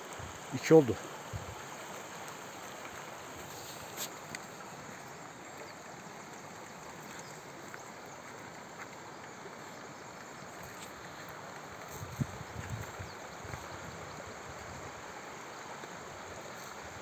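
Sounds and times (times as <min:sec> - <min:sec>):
outdoor background hiss: 0:00.0 - 0:17.0
faint clicks: 0:02.2 - 0:12.0.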